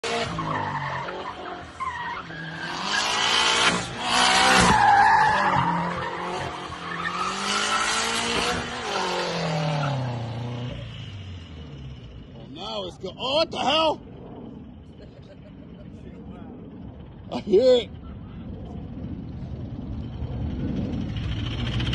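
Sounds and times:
car engine revving: 0:00.0 - 0:15.4, 0:18.0 - 0:21.9.

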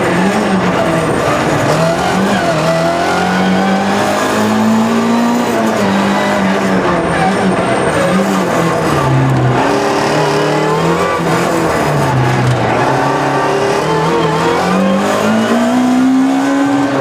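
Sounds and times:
rally car engine: 0:00.0 - 0:17.0
tyre squeal: 0:06.9 - 0:17.0.

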